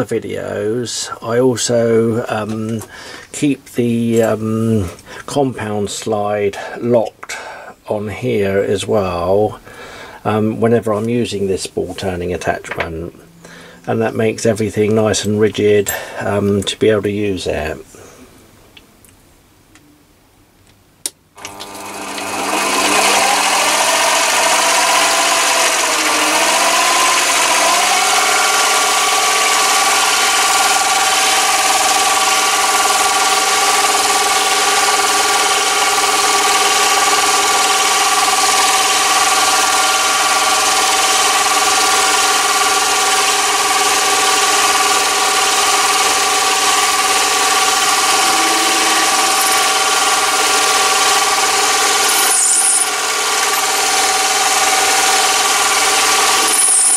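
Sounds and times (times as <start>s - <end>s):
lathe motor whine: 21.4s - 56.9s.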